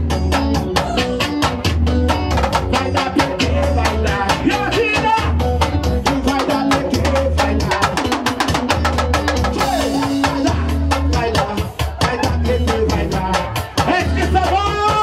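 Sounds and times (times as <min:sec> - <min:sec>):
electric guitar: 0:00.0 - 0:15.0
fast drum beat: 0:00.0 - 0:15.0
repeating bass line: 0:00.0 - 0:15.0
man singing into a microphone: 0:02.6 - 0:08.6, 0:09.5 - 0:15.0.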